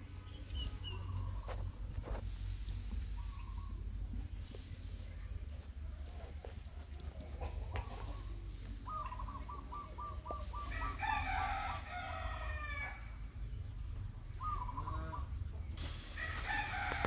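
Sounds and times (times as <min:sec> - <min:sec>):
chicken clucking: 0:03.1 - 0:11.6
rooster crowing: 0:10.6 - 0:13.1, 0:16.1 - 0:17.0.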